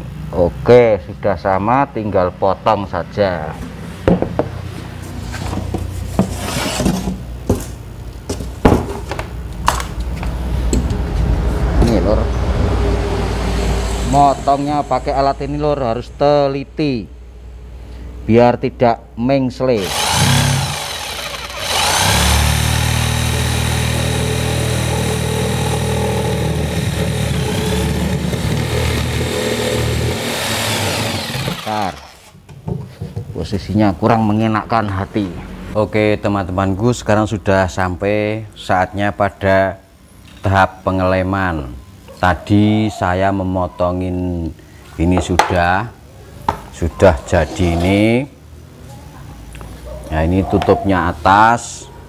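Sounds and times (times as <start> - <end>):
board scraping: 5.0 - 7.3
power saw cutting wood: 19.8 - 32.4.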